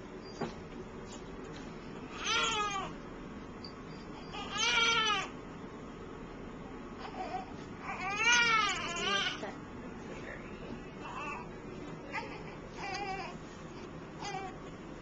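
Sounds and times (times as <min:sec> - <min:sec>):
newborn baby crying: 0:02.1 - 0:03.0, 0:04.3 - 0:05.4, 0:07.0 - 0:09.4, 0:12.1 - 0:13.4, 0:14.2 - 0:14.6.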